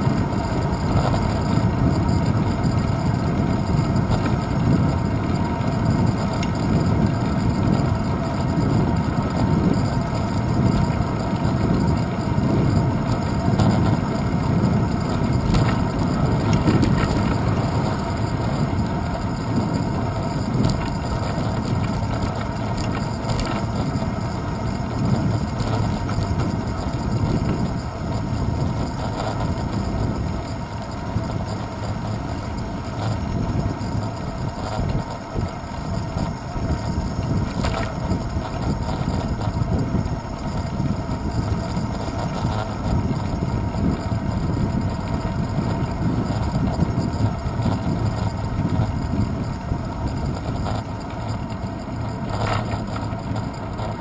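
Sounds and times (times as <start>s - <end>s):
bicycle tyre rumble on asphalt: 0.0s - 54.0s
rattles from road bumps: 0.0s - 54.0s
wind buffeting camera: 0.0s - 54.0s.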